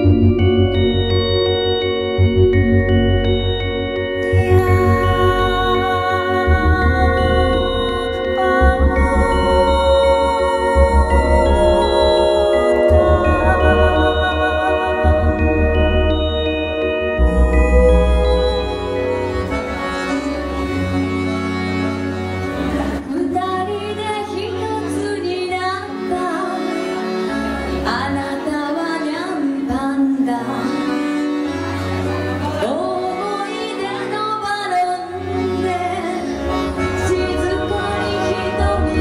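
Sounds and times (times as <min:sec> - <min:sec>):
low bass line: 0:00.0 - 0:23.0
accordion chords: 0:00.0 - 0:39.0
woman singing: 0:04.2 - 0:16.2, 0:17.1 - 0:19.8, 0:23.0 - 0:26.9, 0:27.8 - 0:31.2, 0:32.4 - 0:39.0.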